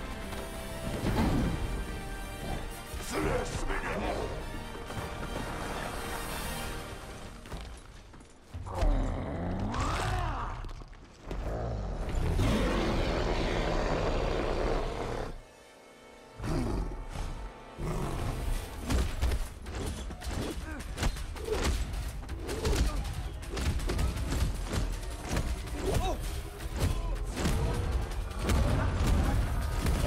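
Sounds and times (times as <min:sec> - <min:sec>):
dramatic film score: 0:00.0 - 0:30.0
monster roaring: 0:11.4 - 0:15.4
punches and hits: 0:18.8 - 0:30.0.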